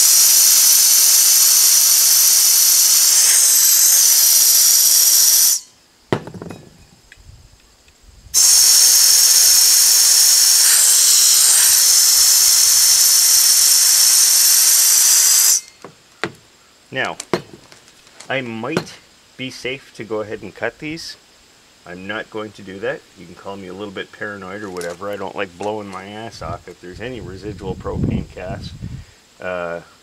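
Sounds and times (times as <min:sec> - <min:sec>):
compressed air hissing: 0:00.0 - 0:05.7, 0:08.3 - 0:16.7
cylinder knock: 0:06.1 - 0:06.8, 0:15.8 - 0:16.4, 0:17.3 - 0:17.6.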